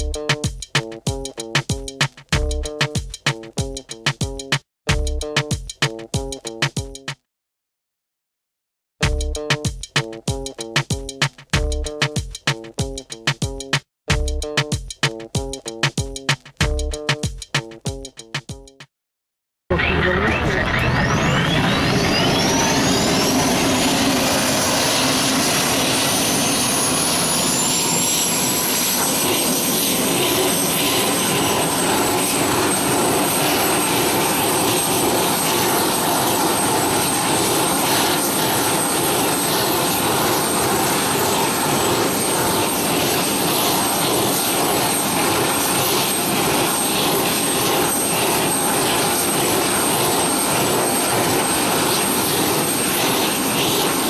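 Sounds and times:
jet engines running: 19.7 - 54.0.

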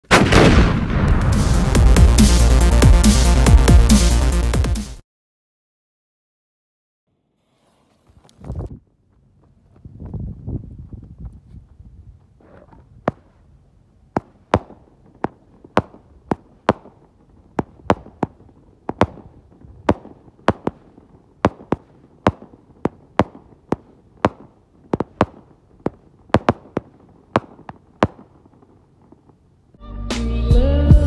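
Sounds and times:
firework cake bangs: 14.2 - 28.3.

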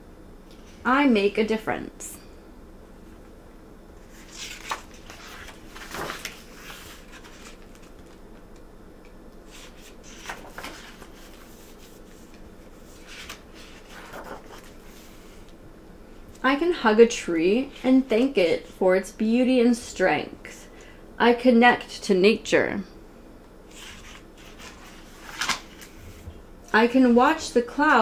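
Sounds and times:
faint steady hum: 0.0 - 28.0
book pages turning: 4.1 - 8.3, 9.4 - 15.6, 23.7 - 26.2.

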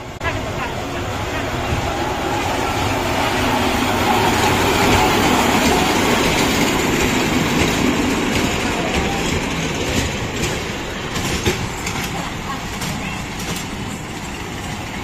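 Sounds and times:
mini train running past: 0.0 - 15.0.

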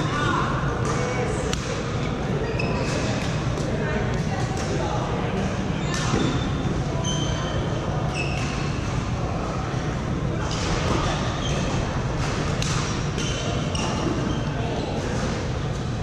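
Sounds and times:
shoes squeaking on court floor: 1.9 - 3.4, 5.8 - 9.0, 12.8 - 16.0.

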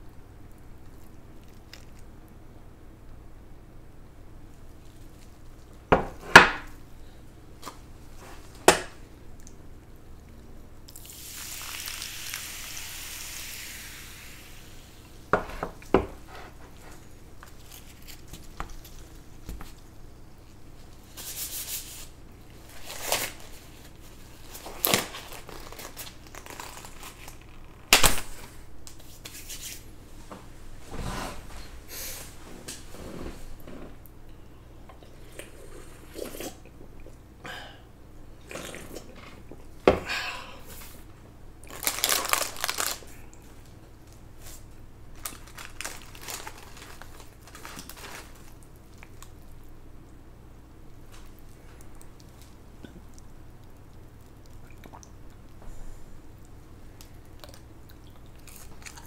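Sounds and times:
packaging crinkling: 22.6 - 28.5, 41.7 - 43.3, 44.0 - 49.6.

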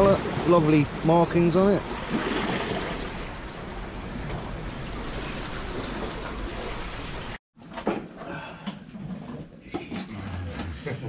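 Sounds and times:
sea surf: 0.0 - 7.4.

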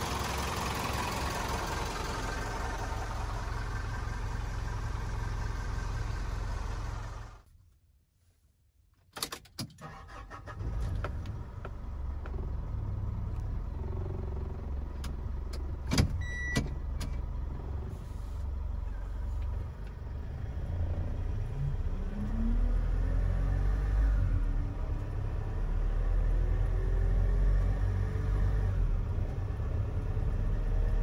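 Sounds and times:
diesel truck engine revving: 0.0 - 7.4, 10.1 - 31.0
short beep: 16.2 - 16.6.

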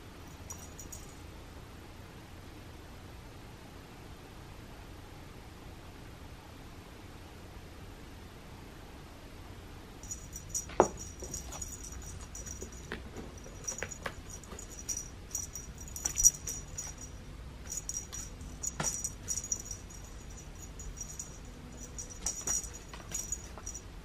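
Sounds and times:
small bell jingling: 0.2 - 1.2, 10.0 - 24.0.

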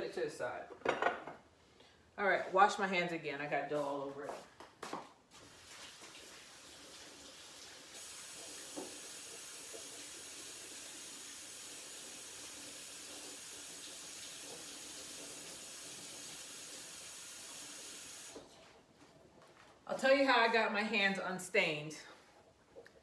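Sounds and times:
sink tap running: 5.5 - 18.4.

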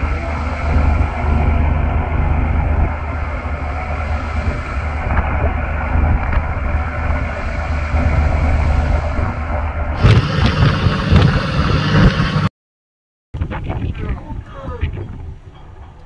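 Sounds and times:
boat diesel engine rumbling: 0.0 - 12.5.

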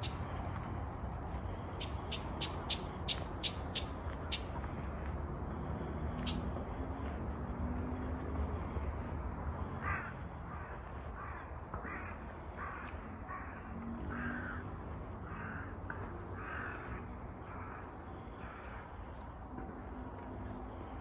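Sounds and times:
crow cawing: 9.8 - 18.9.

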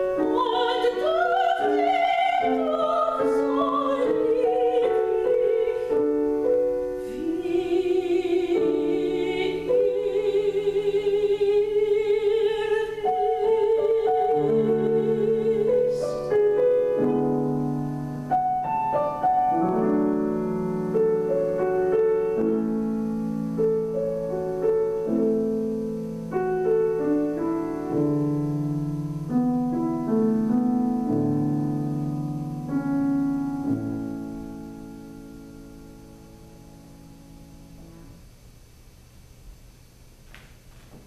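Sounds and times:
soprano singing with vibrato: 0.0 - 17.2
grand piano playing: 0.0 - 38.3.

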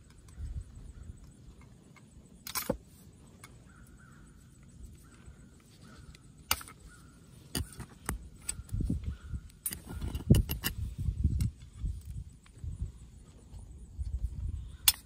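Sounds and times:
sharp metal clicks and knocks: 1.2 - 2.8, 7.5 - 8.8, 9.4 - 12.6.

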